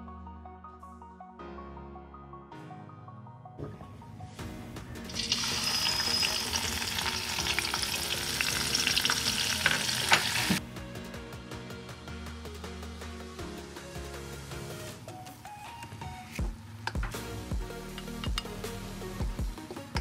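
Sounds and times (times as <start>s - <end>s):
soft background music: 0.0s - 20.0s
paste sizzling in hot oil: 5.1s - 10.6s.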